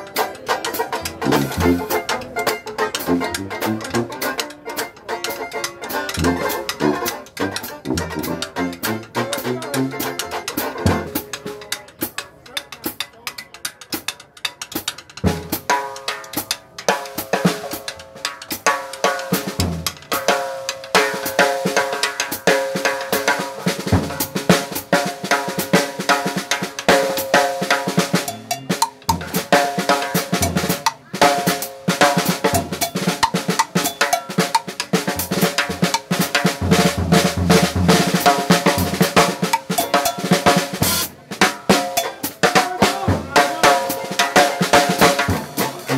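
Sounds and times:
jazz band playing: 0:00.0 - 0:45.9
snare drum strokes: 0:00.0 - 0:45.9
trombone: 0:01.0 - 0:11.3, 0:23.2 - 0:45.9.

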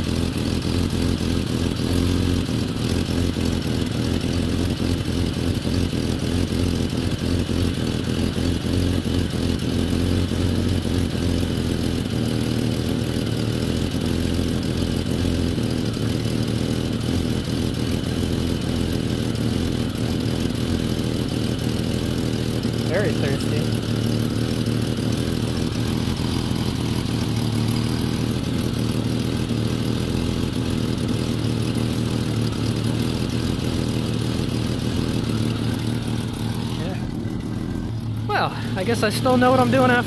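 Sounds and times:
car engine idling: 0:00.0 - 0:40.0.

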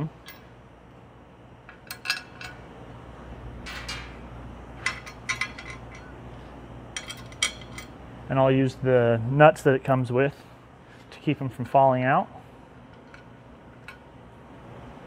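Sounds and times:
bolts clinking against metal plate: 0:01.7 - 0:02.6, 0:04.8 - 0:06.2, 0:06.9 - 0:07.9, 0:12.9 - 0:14.1.

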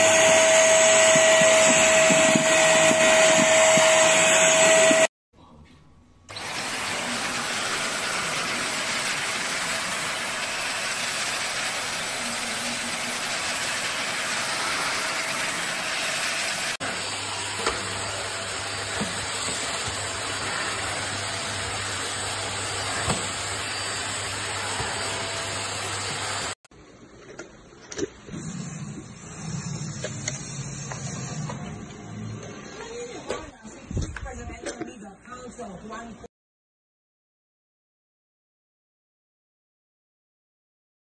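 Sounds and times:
stick vacuum cleaner running: 0:00.0 - 0:05.1, 0:06.3 - 0:26.6.

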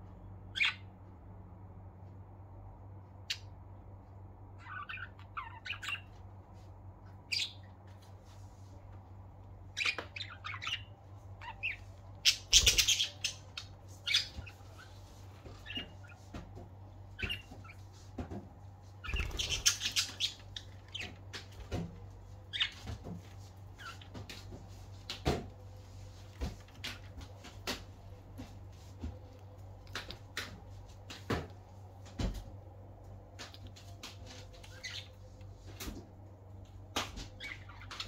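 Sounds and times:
budgerigars chirping and squawking: 0:00.6 - 0:00.9, 0:04.6 - 0:06.2, 0:07.3 - 0:07.7, 0:09.7 - 0:16.4, 0:17.1 - 0:18.3, 0:19.0 - 0:21.8, 0:22.5 - 0:23.2, 0:23.8 - 0:24.5, 0:34.3 - 0:35.2, 0:37.3 - 0:38.0.

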